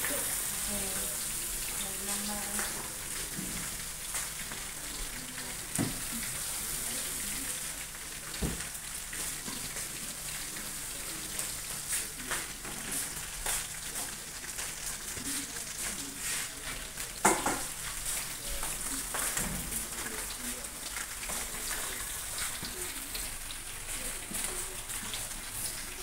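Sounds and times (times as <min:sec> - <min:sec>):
food sizzling in hot oil: 0:00.0 - 0:26.0.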